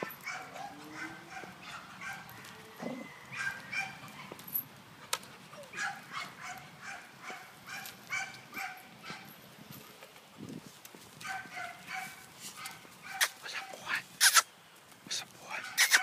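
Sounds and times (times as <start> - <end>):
dogs yipping and whining: 0.0 - 4.6, 5.5 - 9.3, 15.7 - 16.0.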